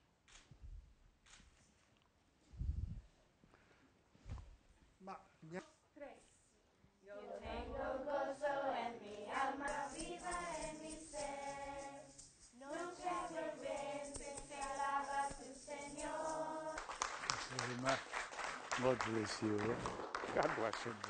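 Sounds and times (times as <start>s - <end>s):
children singing in unison: 7.2s - 16.9s.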